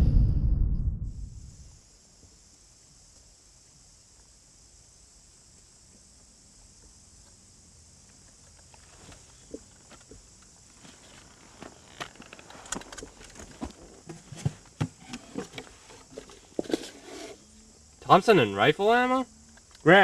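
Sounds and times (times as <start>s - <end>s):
knocks clicks and rustles: 9.0s - 17.3s.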